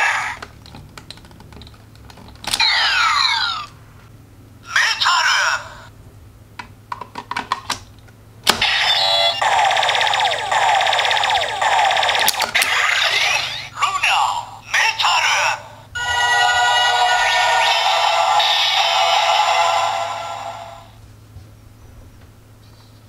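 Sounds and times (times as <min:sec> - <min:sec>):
recorded voice announcement: 0:04.6 - 0:05.9, 0:13.1 - 0:15.9
electronic standby loop: 0:08.6 - 0:13.8, 0:16.0 - 0:21.0
transformation music: 0:16.0 - 0:21.0.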